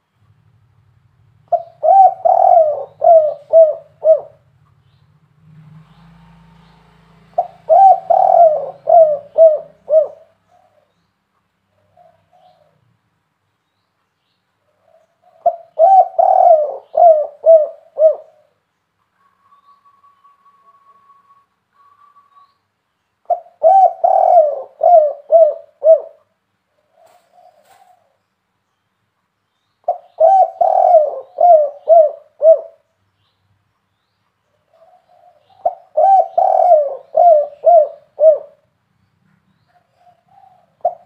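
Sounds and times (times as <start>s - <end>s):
dove cooing: 1.5s - 4.5s, 7.2s - 10.9s, 11.7s - 12.9s, 14.7s - 18.6s, 23.2s - 28.2s, 29.8s - 32.9s, 34.7s - 38.7s, 39.7s - 41.0s.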